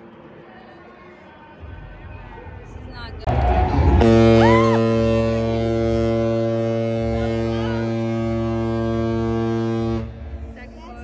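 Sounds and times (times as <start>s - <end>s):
rising and falling whoop: 3.3s - 5.0s
deep stadium horn blast: 3.3s - 10.6s.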